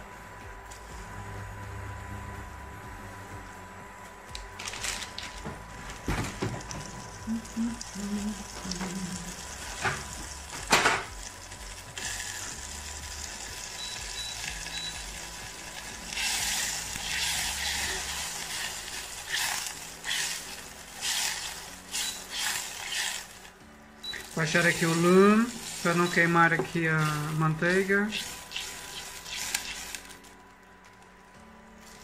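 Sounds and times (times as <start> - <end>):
butter sizzling in saucepan: 6.6 - 30.1.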